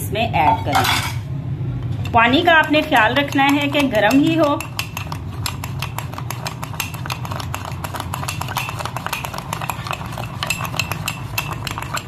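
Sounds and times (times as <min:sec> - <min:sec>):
spoon clicking against cup: 0:02.6 - 0:12.0.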